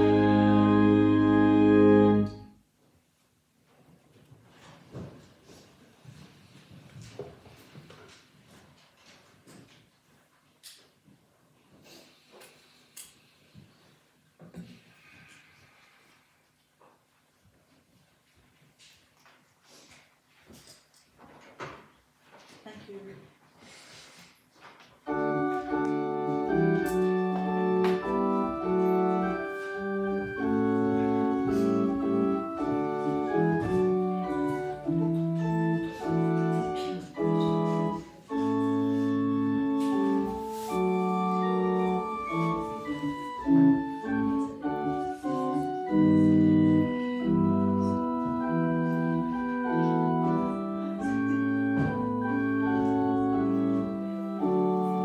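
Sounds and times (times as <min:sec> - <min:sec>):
organ playing full chords: 0:00.0 - 0:02.5, 0:25.0 - 0:55.0.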